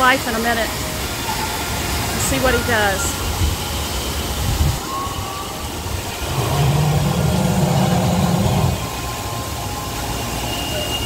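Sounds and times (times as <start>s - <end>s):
hiss of mist: 4.5s - 9.2s
falling water: 5.8s - 9.2s
animatronic crocodile low growl: 6.1s - 9.0s.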